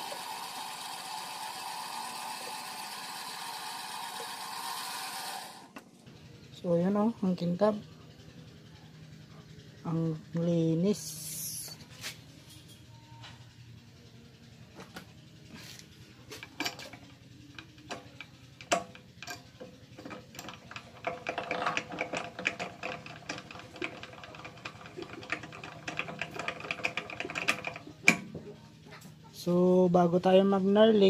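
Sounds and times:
small metal parts clicking: 16.3 - 28.4
drill chuck clicking and rattling: 20.0 - 28.2.

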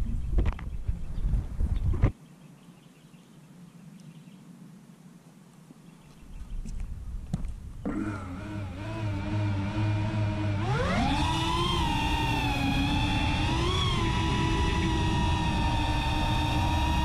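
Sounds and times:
drone motors whining: 7.8 - 17.0.

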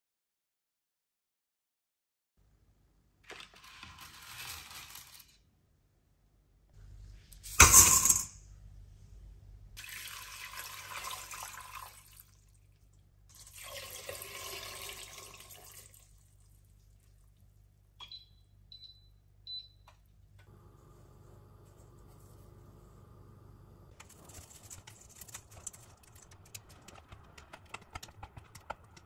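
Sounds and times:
water pouring into metal pot: 9.8 - 12.7, 13.3 - 16.5
faint steady hum: 16.0 - 24.0.

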